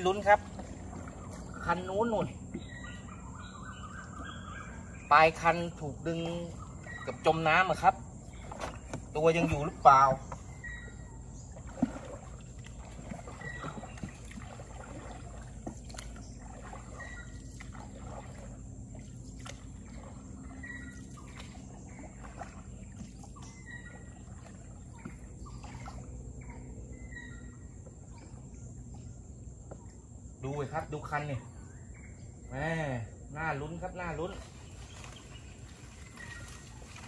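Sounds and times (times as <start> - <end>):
water dripping off paddle: 0.0 - 4.4, 5.3 - 26.4, 34.3 - 37.0
paddle pulling through water: 0.0 - 31.1, 34.1 - 37.0
paddle knocks on boat: 0.4 - 2.9, 8.3 - 10.7, 11.5 - 17.0.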